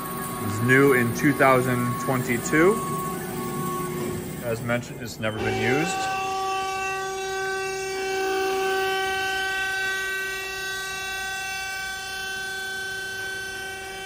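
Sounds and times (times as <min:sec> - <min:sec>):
bandsaw machine whine: 0:00.0 - 0:14.0.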